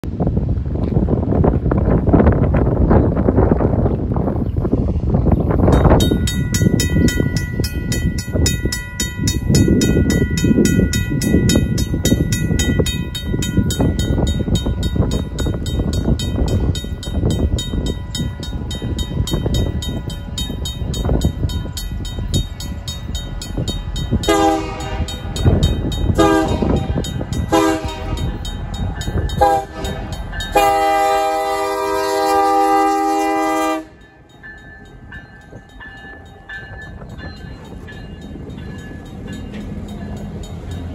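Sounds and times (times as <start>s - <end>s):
crossing bell ringing: 5.5s - 40.9s
locomotive air horn blasts: 24.2s - 25.3s, 26.2s - 28.4s, 29.4s - 34.0s.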